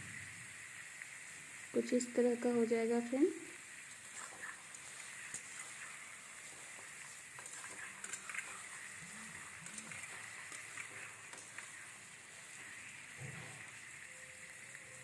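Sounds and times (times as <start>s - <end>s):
vegetables sizzling in hot oil: 0.0s - 15.0s
metal spatula scraping and tapping: 4.0s - 11.8s.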